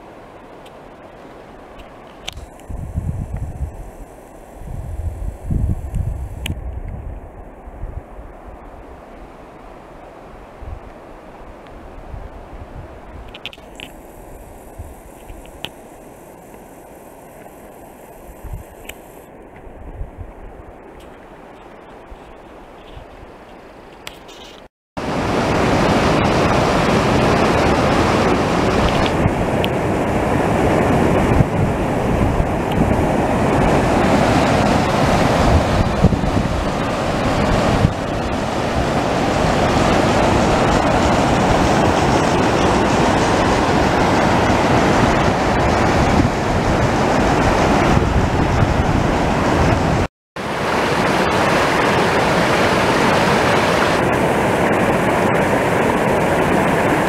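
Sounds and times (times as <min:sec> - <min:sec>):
whitewater rushing over rocks: 0:25.0 - 0:57.0.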